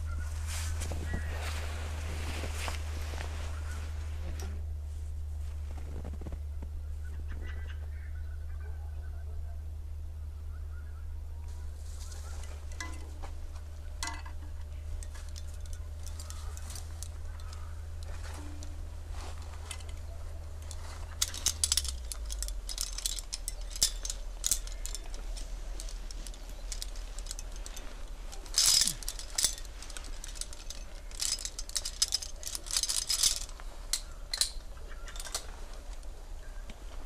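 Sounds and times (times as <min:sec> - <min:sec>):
steady low hum: 0:00.0 - 0:37.0
climbing hardware clinking: 0:12.1 - 0:37.0.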